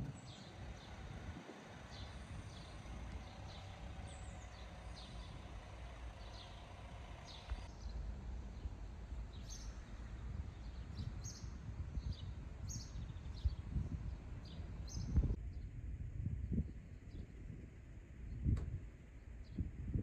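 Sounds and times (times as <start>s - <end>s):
small birds chirping: 0.0s - 15.7s
steady low rumble: 0.0s - 20.0s.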